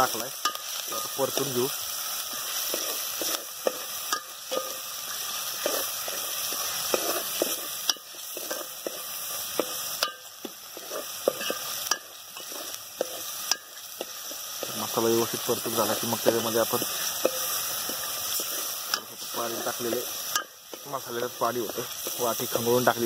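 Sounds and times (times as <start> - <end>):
onions sizzling in oil: 0.0 - 23.0
metal spoon scraping pot: 10.0 - 13.8.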